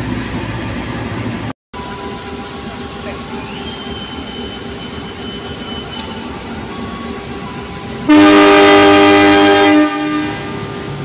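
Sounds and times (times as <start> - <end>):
locomotive engine running: 0.0 - 11.0
locomotive air horn blast: 8.1 - 10.7.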